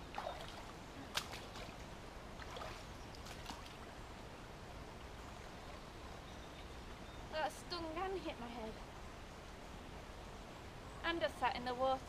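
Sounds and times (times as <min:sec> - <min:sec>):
brook water splashing: 0:00.0 - 0:06.1.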